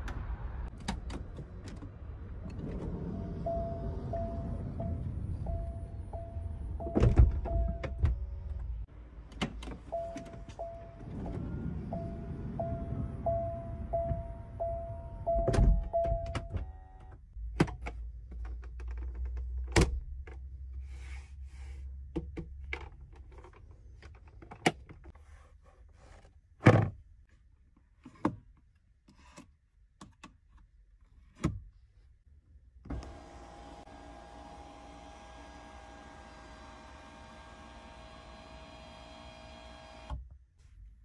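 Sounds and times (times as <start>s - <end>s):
car warning chime beeping: 3.2s - 8.0s, 9.9s - 17.1s.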